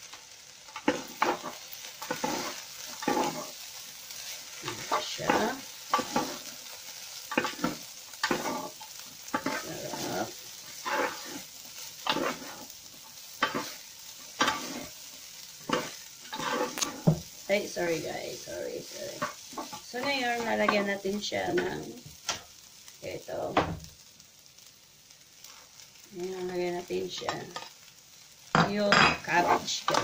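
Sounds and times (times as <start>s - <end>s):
food sizzling in a pan: 0.0s - 30.0s
spatula scraping a pan: 0.7s - 21.8s, 28.6s - 30.0s.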